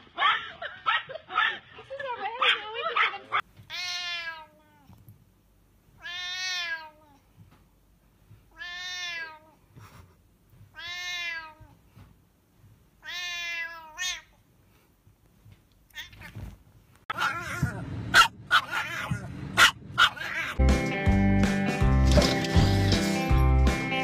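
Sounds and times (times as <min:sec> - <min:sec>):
cat meowing loudly: 0:03.7 - 0:04.9, 0:06.0 - 0:07.1, 0:08.5 - 0:09.6, 0:10.8 - 0:11.7, 0:13.0 - 0:14.4, 0:15.9 - 0:16.5, 0:18.6 - 0:19.3, 0:20.0 - 0:20.6.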